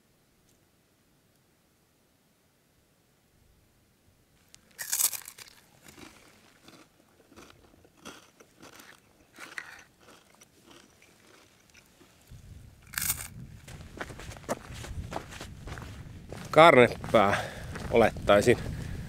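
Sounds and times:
footsteps crunching: 0:04.4 - 0:19.0.

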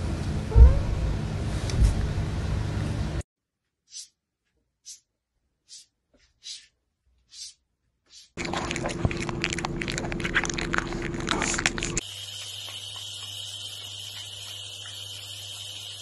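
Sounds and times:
kitten licking and biting lemon: 0:08.4 - 0:13.4.

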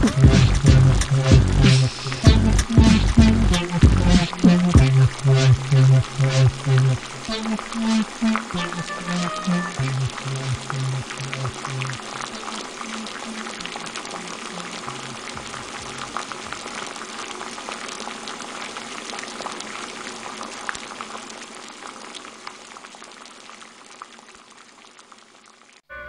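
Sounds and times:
low music notes: 0:00.0 - 0:12.0
dense bubbling crackling noise: 0:00.0 - 0:25.8.

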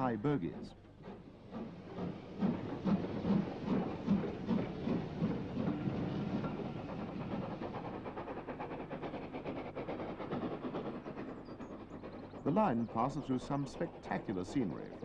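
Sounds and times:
steam locomotive exhaust beats: 0:00.0 - 0:15.0.

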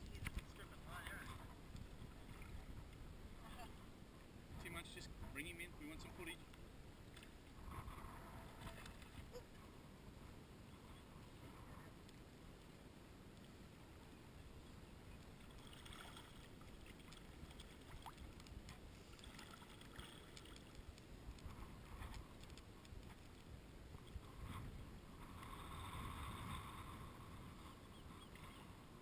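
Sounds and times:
water lapping and splashing: 0:15.1 - 0:29.0.

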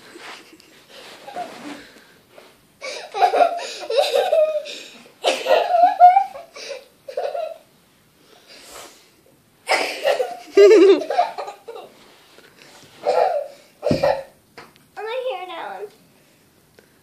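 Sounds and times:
girl laughing and giggling: 0:02.8 - 0:07.6, 0:09.7 - 0:11.9.

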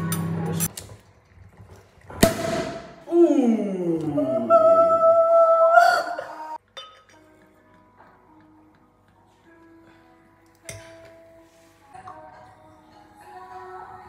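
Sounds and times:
champagne cork popping: 0:02.2 - 0:03.0.

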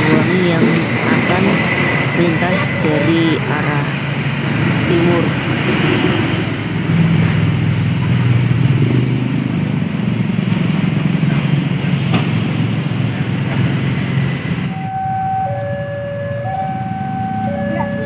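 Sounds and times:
two-tone electronic warning tones: 0:14.7 - 0:18.0.

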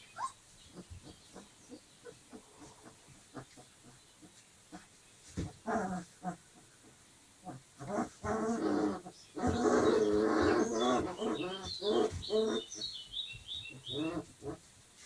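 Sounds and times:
puppies growling and yapping: 0:05.6 - 0:06.7, 0:07.4 - 0:12.8, 0:13.9 - 0:14.6.

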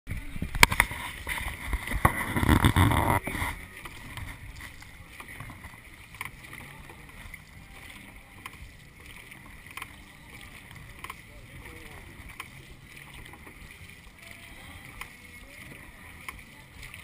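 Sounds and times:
microphone rumble: 0:00.1 - 0:05.8
paddles splashing in water: 0:00.1 - 0:17.0.

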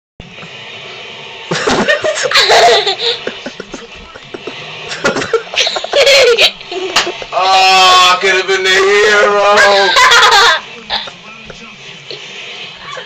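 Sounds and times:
girl laughing: 0:01.5 - 0:07.2, 0:09.6 - 0:11.2.

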